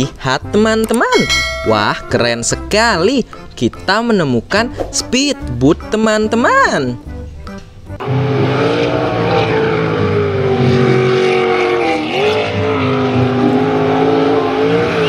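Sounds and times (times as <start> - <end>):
boat engine running at high revs: 8.0 - 15.0.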